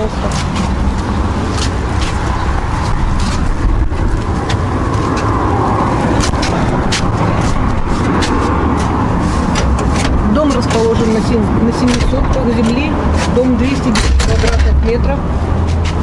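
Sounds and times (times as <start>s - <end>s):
footsteps on brick paving: 0.0s - 9.5s, 15.6s - 16.0s
wind rumble on microphone: 0.0s - 16.0s.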